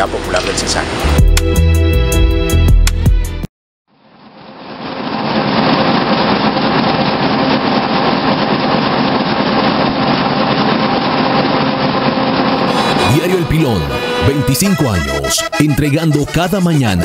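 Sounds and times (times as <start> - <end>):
printing press running: 4.5 - 14.3.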